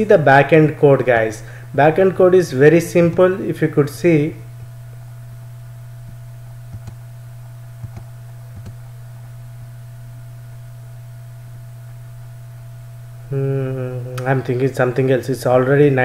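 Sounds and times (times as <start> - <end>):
low electrical hum: 0.0 - 16.0
computer mouse clicks: 6.0 - 7.0, 7.8 - 8.8.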